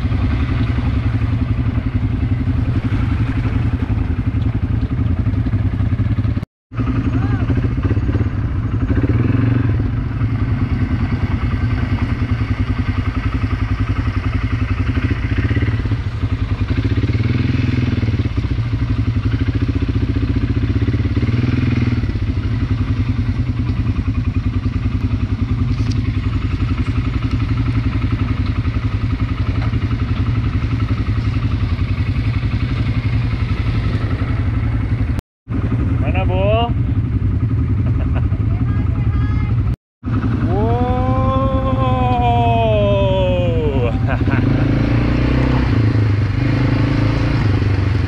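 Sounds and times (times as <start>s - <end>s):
atv engine running: 0.0s - 48.0s.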